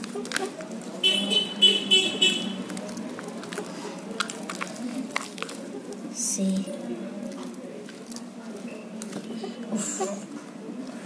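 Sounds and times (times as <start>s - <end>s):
slime squishing: 0.0s - 9.7s.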